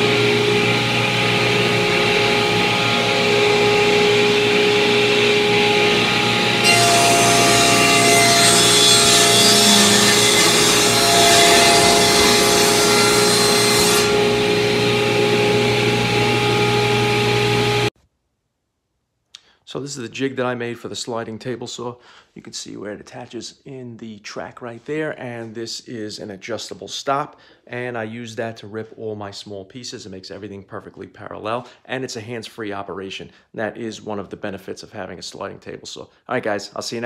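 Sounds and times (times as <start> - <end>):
table saw humming: 0.0 - 17.9
saw blade ripping wood: 6.6 - 14.3.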